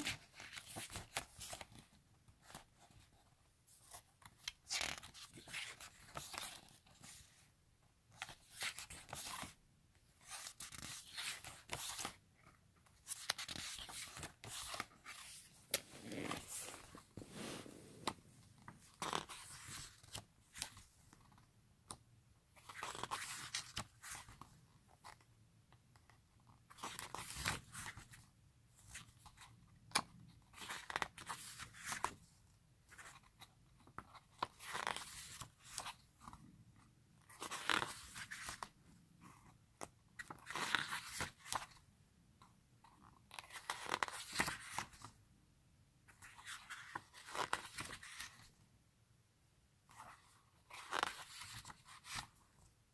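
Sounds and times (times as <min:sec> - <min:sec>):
photo book pages turning: 0:03.8 - 0:07.3, 0:10.2 - 0:22.0, 0:22.6 - 0:25.2, 0:26.7 - 0:28.2, 0:28.9 - 0:32.2, 0:32.9 - 0:36.4, 0:37.2 - 0:38.7, 0:40.2 - 0:41.8, 0:43.2 - 0:45.1, 0:46.1 - 0:48.5, 0:49.9 - 0:52.4.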